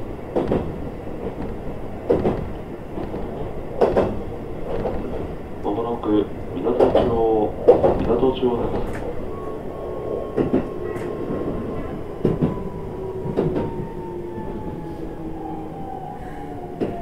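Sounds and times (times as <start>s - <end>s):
sharp clacks: 0.4s - 5.3s.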